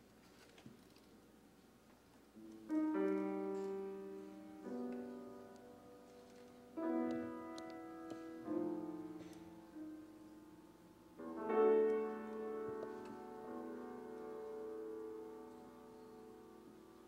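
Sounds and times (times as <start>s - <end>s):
slow piano chords: 2.3s - 17.0s.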